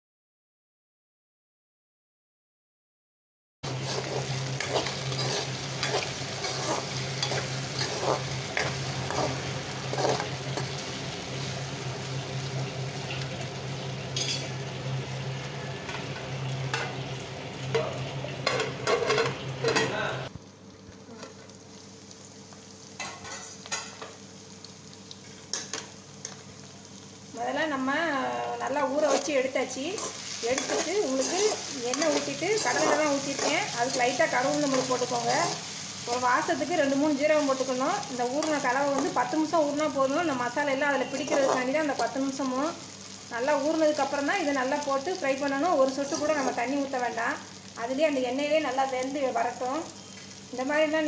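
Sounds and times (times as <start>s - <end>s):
vegetables sizzling in oil: 3.6s - 51.0s
spoon scraping metal pan: 3.7s - 10.8s, 28.9s - 35.7s, 41.0s - 41.8s.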